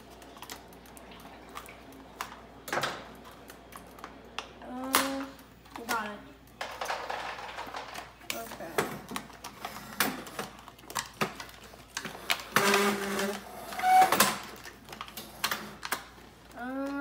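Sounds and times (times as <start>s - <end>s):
plastic packaging crinkling: 6.6s - 16.8s.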